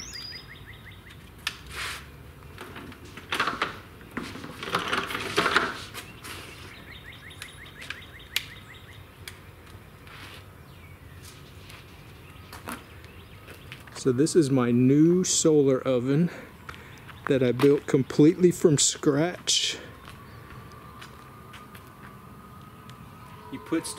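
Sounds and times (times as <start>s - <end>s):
bird chirping: 0.0s - 1.2s, 6.0s - 9.6s, 10.6s - 15.6s, 16.5s - 23.9s.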